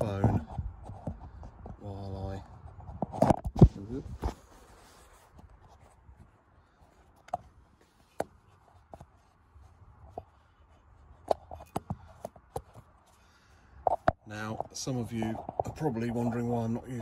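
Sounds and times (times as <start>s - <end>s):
faint rubbing: 3.8s - 13.2s
phone taps and clicks: 13.8s - 14.7s.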